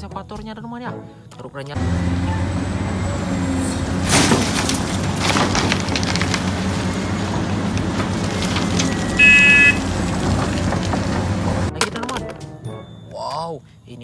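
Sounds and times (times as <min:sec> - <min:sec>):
excavator diesel engine running: 0:01.8 - 0:11.7
earth and rocks clattering: 0:03.2 - 0:12.6
scattered knocks: 0:03.4 - 0:12.6
short loud beep: 0:09.0 - 0:09.8.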